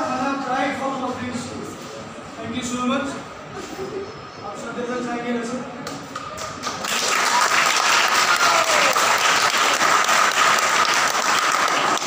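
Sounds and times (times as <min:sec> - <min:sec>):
children clapping: 0:05.9 - 0:12.0.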